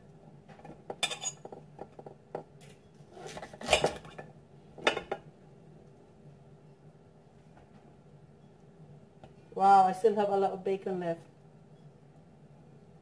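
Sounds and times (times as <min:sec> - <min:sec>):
knife clinking on ceramic plate: 0:01.0 - 0:01.6.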